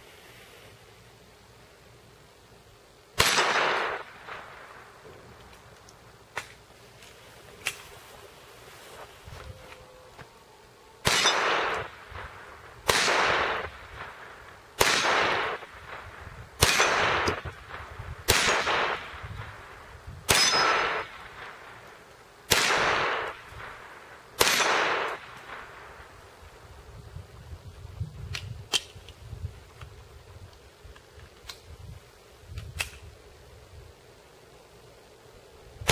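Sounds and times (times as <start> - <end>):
pistol shots: 3.2 - 4.6, 11.0 - 14.2, 14.8 - 16.0, 16.6 - 17.6, 18.2 - 19.4, 20.3 - 21.6, 22.5 - 23.8, 24.4 - 25.8
steel plate target ringing: 20.3 - 21.0.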